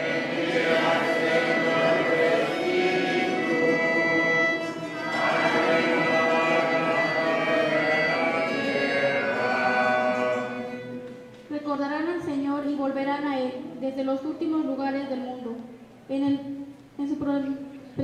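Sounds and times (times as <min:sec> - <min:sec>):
church music held notes: 0:00.0 - 0:11.5.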